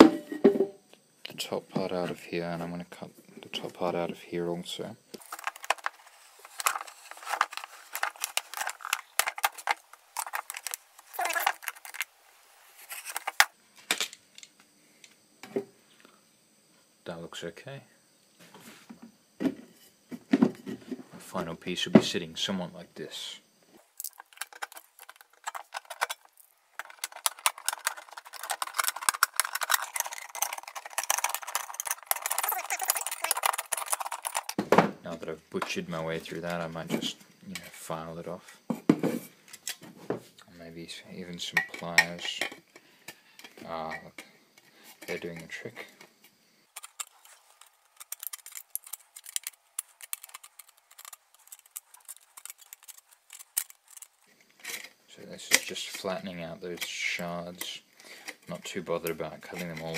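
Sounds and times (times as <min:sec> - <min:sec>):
pliers crimping metal can rim: 0:46.8 - 0:54.8.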